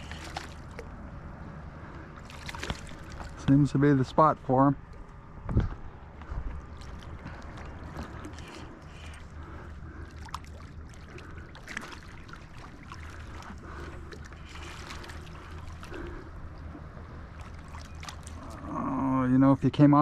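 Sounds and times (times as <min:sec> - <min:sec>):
fish splashing at surface: 0:00.0 - 0:01.0, 0:02.2 - 0:03.4, 0:06.6 - 0:16.3, 0:17.3 - 0:18.6
water sloshing and lapping: 0:00.0 - 0:20.0.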